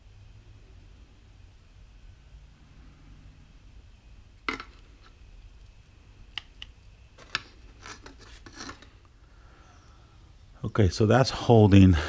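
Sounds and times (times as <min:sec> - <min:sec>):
plastic rubbing on plastic: 0:07.2 - 0:09.0.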